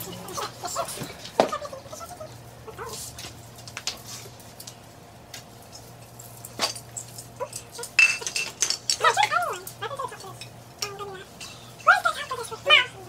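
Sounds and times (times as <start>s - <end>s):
steady low hum: 0.0s - 13.0s
ornaments clicking and tinsel rustling: 2.9s - 12.6s.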